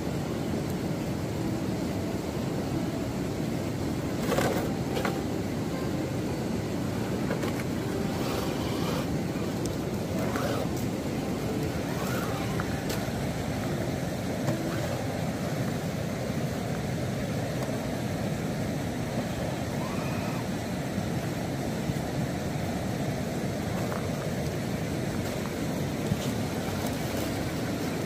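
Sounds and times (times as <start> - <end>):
steady rushing noise: 0.0 - 28.0
electric motor whines: 7.0 - 13.3.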